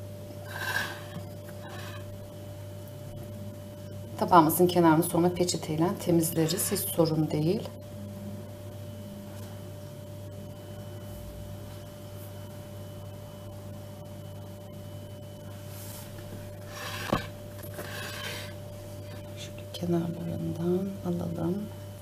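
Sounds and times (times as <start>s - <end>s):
steady low hum: 0.0s - 22.0s
ceramic plate scraping on stone: 6.3s - 7.0s, 16.6s - 18.6s
plate knocking on countertop: 17.0s - 17.3s.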